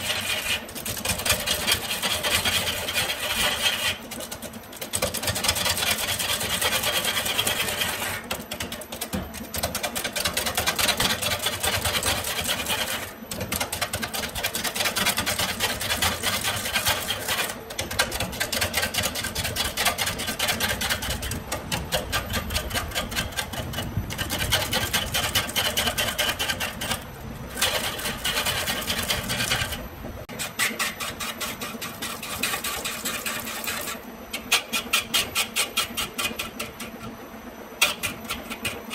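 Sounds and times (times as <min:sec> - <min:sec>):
lathe turning tool chattering: 0:14.3 - 0:29.8
lathe motor running: 0:19.7 - 0:34.1.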